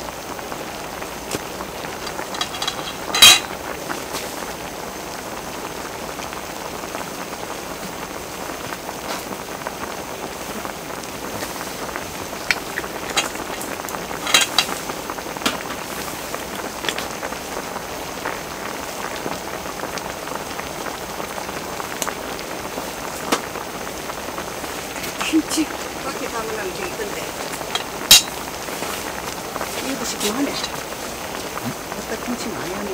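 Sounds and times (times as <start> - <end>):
stew bubbling: 0.0 - 32.9
sharp pops: 12.3 - 15.9, 27.4 - 28.6.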